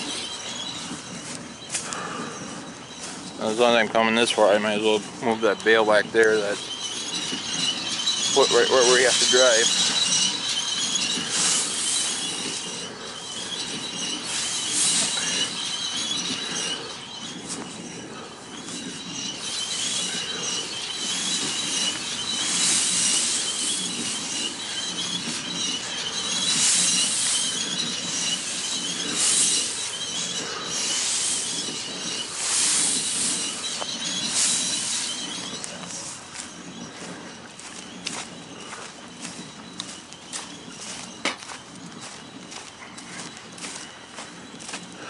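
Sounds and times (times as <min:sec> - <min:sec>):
tractor engine running: 0:00.0 - 0:36.4
high-pitched squeal: 0:00.0 - 0:42.7
hiss: 0:11.1 - 0:17.0, 0:19.4 - 0:36.2.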